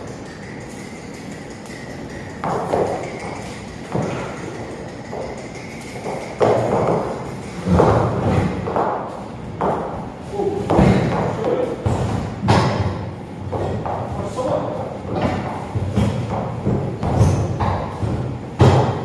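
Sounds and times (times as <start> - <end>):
horse hooves thudding: 2.0 - 10.0.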